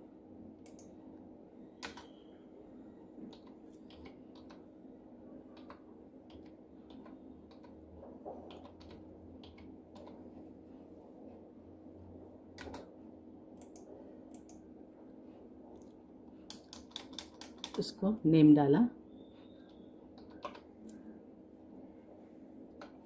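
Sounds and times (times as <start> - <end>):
faint steady hum: 0.0 - 23.0
keyboard typing clicks: 0.6 - 1.0, 1.8 - 2.2, 3.2 - 4.7, 5.6 - 7.8, 8.4 - 10.2, 12.6 - 12.9, 13.6 - 14.6, 15.8 - 17.9, 19.6 - 21.0.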